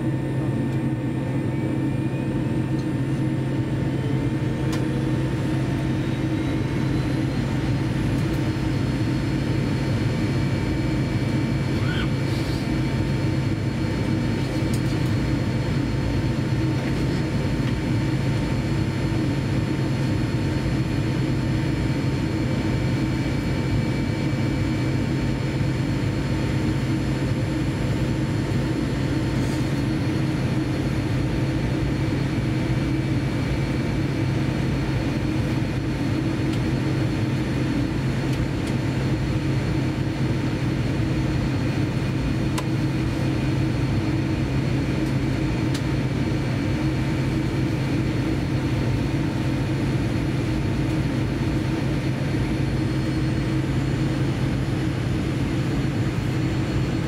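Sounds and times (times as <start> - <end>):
low hum of aircraft cabin: 0.0 - 57.0
thin steady whines: 0.0 - 57.0.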